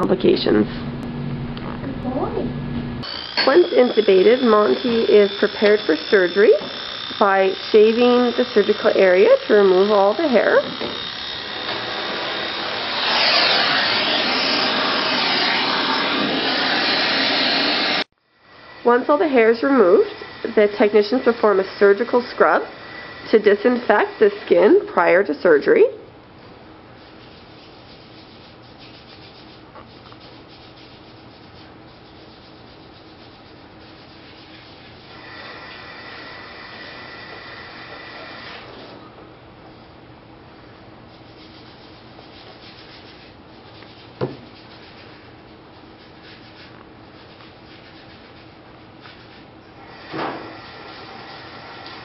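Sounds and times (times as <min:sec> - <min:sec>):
vacuum hose rushing: 0:11.4 - 0:18.1, 0:49.8 - 0:52.0
gauze rubbing on skin: 0:27.0 - 0:35.1, 0:41.1 - 0:49.5.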